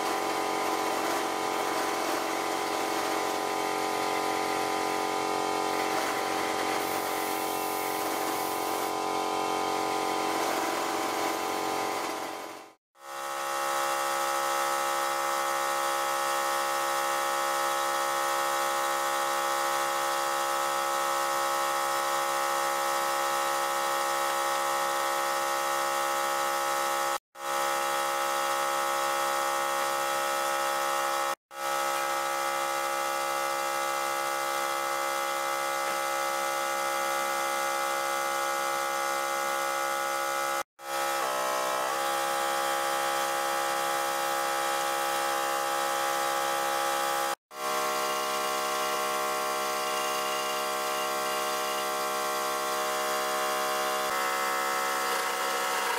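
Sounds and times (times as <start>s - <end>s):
wood lathe whining: 47.7s - 55.9s.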